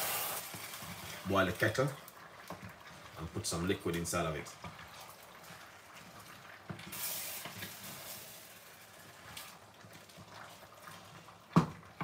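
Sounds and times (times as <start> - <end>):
low sizzle from pot: 0.0 - 12.0
wooden spoon stirring in a pot: 0.5 - 12.0
knock: 11.6 - 11.8.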